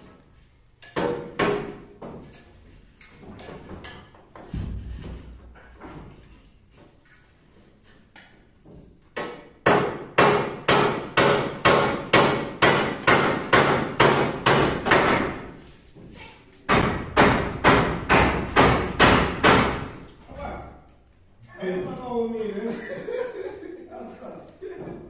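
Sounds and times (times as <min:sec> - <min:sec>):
hammer driving nails into timber: 0:09.2 - 0:15.4, 0:16.7 - 0:20.0.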